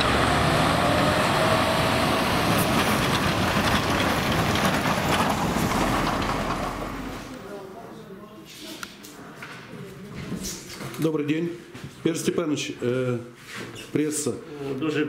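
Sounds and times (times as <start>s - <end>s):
diesel truck driving past: 0.0s - 7.4s.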